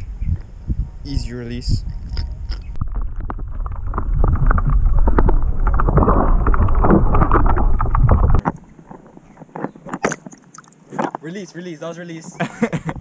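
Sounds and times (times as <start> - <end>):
bubbling clicks: 2.0 - 11.2
muffled underwater rumble and sloshing: 2.2 - 9.8.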